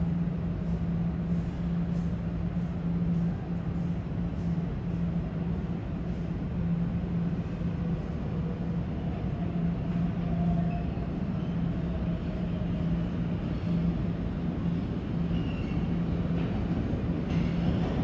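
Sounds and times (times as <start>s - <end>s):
subway train rumbling: 0.0s - 18.0s
faint high squeal: 10.4s - 12.0s.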